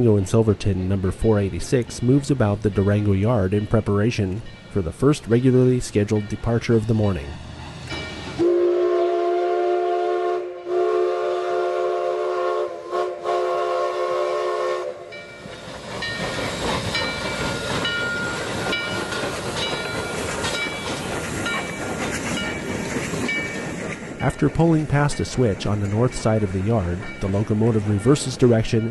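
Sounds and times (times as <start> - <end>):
steam locomotive chuffing and hissing: 0.0 - 28.9
steam whistle chord blasts: 8.4 - 15.1.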